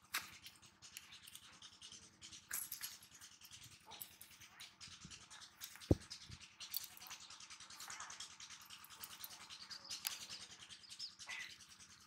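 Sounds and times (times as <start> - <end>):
rustling and scratching: 0.0 - 8.2
sharp thump: 5.9 - 6.1.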